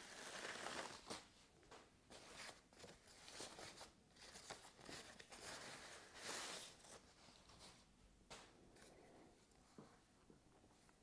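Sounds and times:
foam packing sheet crinkling: 0.0 - 1.3.

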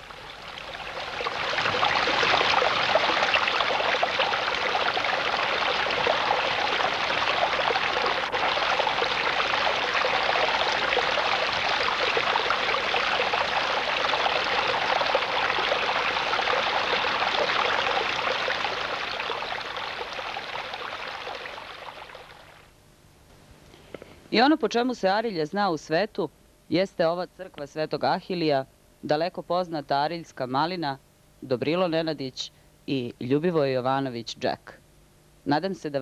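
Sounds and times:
water trickling over rocks: 0.0 - 22.7.

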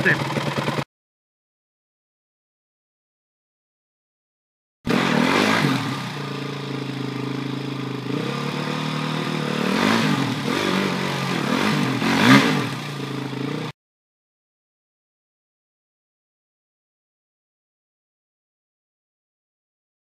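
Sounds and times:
motorcycle engine revving: 0.0 - 0.9, 4.9 - 13.8.

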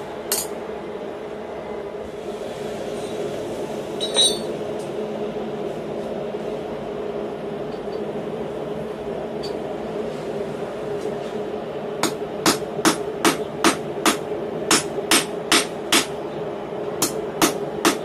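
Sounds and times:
forge humming: 0.0 - 18.0
metallic clink of steel: 4.0 - 4.5.

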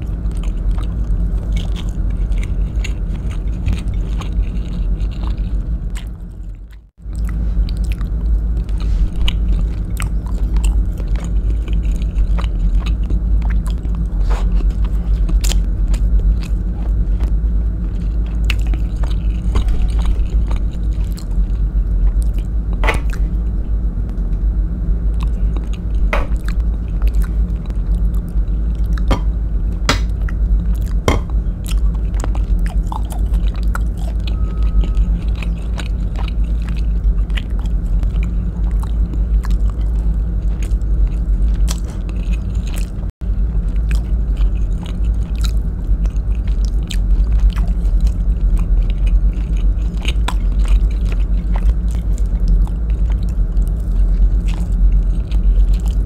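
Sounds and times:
close chewing: 0.0 - 24.3, 25.1 - 56.0
steady low rumble: 0.0 - 56.0.

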